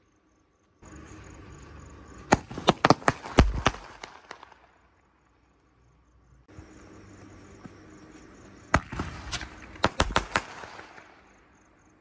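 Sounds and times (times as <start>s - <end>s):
firework bang: 2.3s - 4.6s
loud firework pops: 2.3s - 4.7s, 8.7s - 11.2s
firework crackling: 2.3s - 4.9s, 8.7s - 11.2s.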